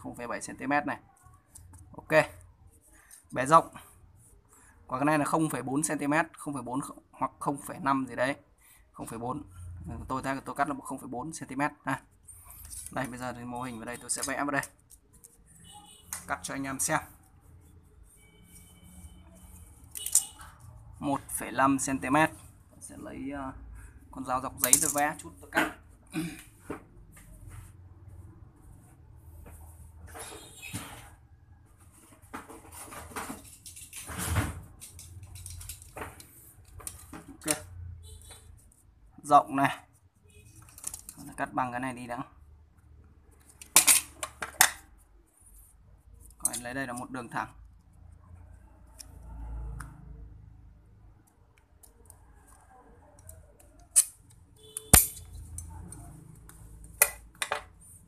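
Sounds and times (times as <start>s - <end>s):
metal snips cutting tin sheet: 54.8s - 55.3s.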